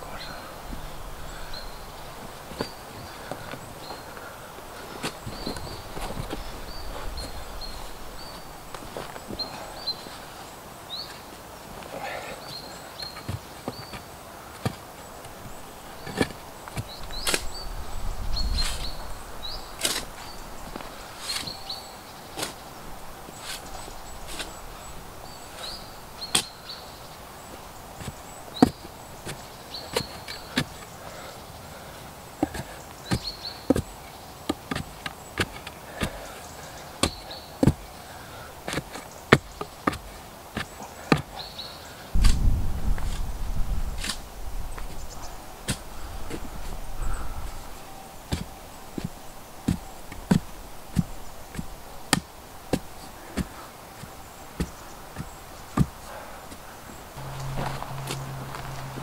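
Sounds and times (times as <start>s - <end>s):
shovel digging into soil: 16.1s - 17.6s, 19.8s - 20.4s, 21.2s - 21.6s, 22.3s - 22.6s, 23.4s - 24.6s, 43.9s - 45.0s.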